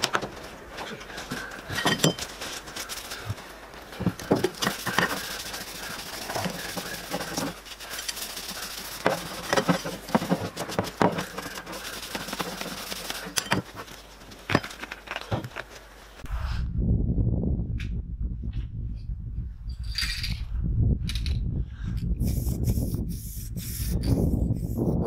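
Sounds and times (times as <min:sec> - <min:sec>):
cloth rag scrubbing wood: 0:04.0 - 0:14.2.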